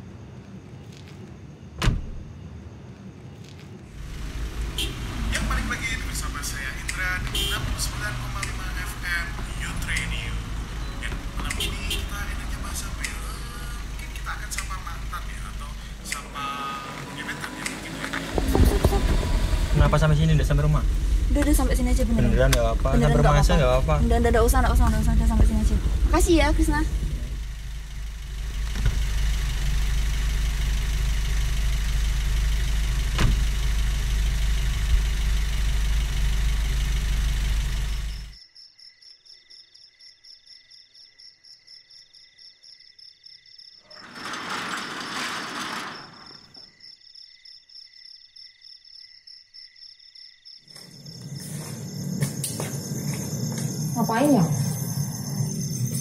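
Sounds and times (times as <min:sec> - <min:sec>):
insects trilling: 0:00.0 - 0:28.6, 0:37.1 - 0:56.0
car engine idling: 0:04.0 - 0:38.4
loud low rumble: 0:18.3 - 0:30.6.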